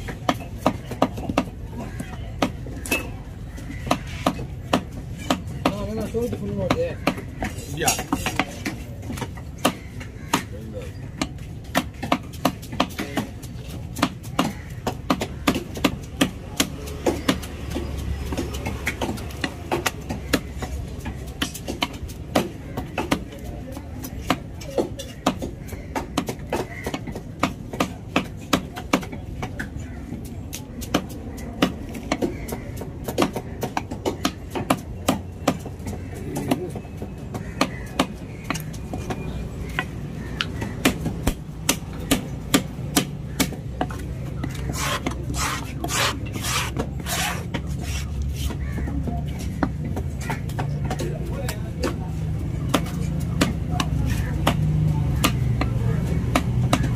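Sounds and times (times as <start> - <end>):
knife chopping on wooden block: 11.2 - 29.6, 30.8 - 51.2, 52.6 - 56.9.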